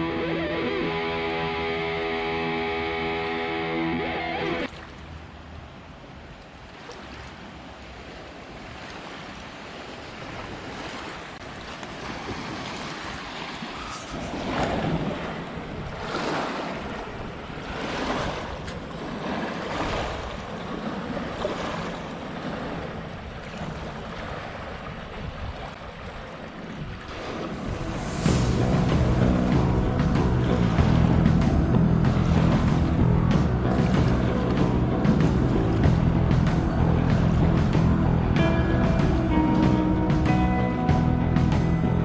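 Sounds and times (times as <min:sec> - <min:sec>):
river water surging against bank: 0:00.0 - 0:42.0
wind buffeting microphone: 0:11.9 - 0:40.5.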